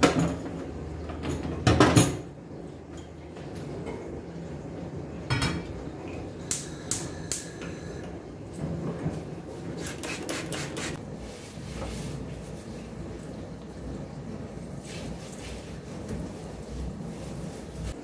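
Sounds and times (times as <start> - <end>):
cloth wiping countertop: 9.5 - 13.4, 14.5 - 18.0.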